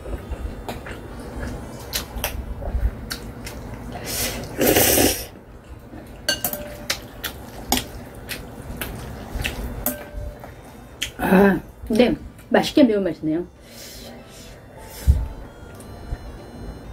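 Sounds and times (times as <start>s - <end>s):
noodle slurp: 4.4s - 5.3s.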